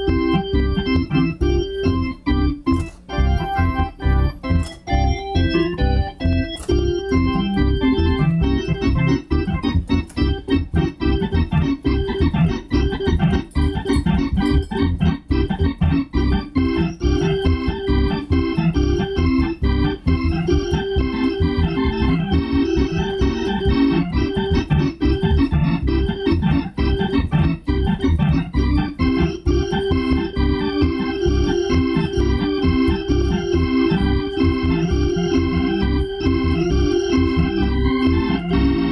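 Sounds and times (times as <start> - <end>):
organ playing: 0.0 - 38.9.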